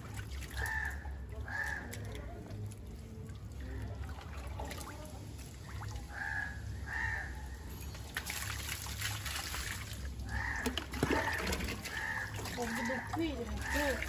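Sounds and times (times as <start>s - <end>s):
water splashing and trickling: 0.0s - 14.0s
bird harsh calls: 10.3s - 14.0s.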